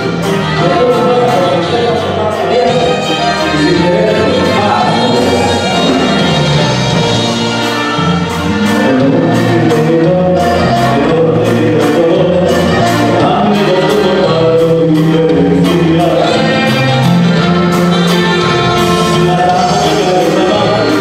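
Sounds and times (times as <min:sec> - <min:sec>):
bass line: 0:00.0 - 0:21.0
dance band music: 0:00.0 - 0:21.0
person singing: 0:00.0 - 0:21.0
steady drum beat: 0:00.0 - 0:21.0.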